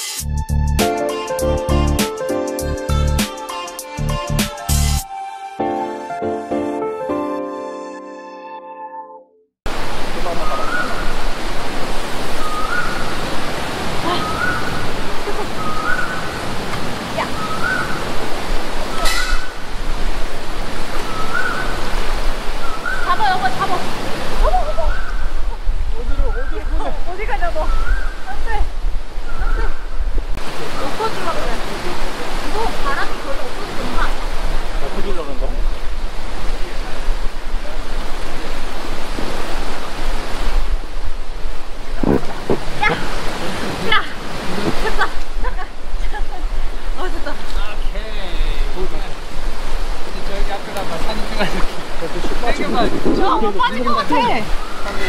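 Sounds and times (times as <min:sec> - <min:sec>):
loud rushing water: 0:09.7 - 0:55.0
wind buffeting microphone: 0:10.8 - 0:30.5, 0:32.0 - 0:47.3, 0:48.6 - 0:55.0.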